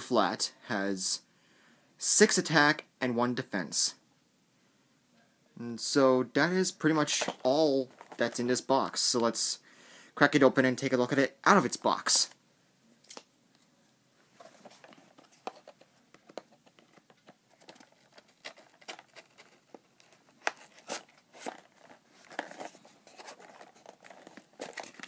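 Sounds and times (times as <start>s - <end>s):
cardboard box crinkling: 14.4s - 25.0s.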